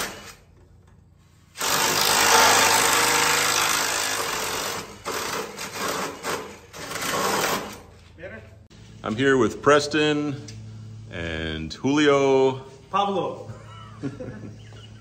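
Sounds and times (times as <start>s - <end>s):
cordless drill boring: 1.6s - 7.6s.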